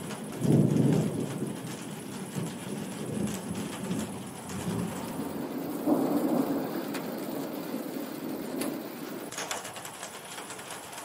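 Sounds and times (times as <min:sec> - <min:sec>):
thunder rumbling: 0:00.0 - 0:09.3
rain falling: 0:00.0 - 0:11.0.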